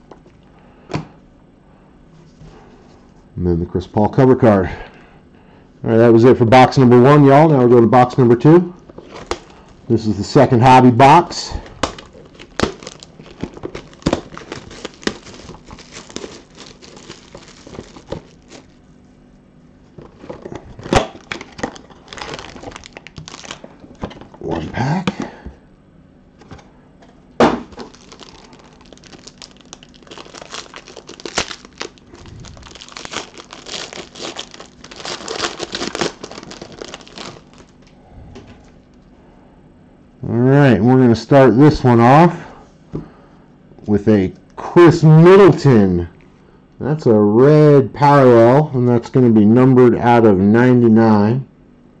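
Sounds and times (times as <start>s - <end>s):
foil pack ripping: 11.6s - 18.8s, 20.0s - 24.2s, 27.5s - 37.9s
plastic wrap crinkling and tearing: 11.6s - 18.9s, 19.9s - 24.4s, 27.6s - 37.9s.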